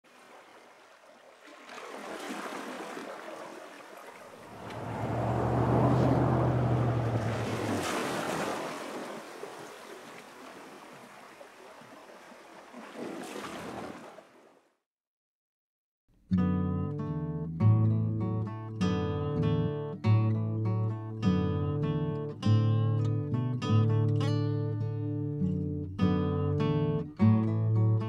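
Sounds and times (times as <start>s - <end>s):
low engine hum: 4.4s - 8.9s.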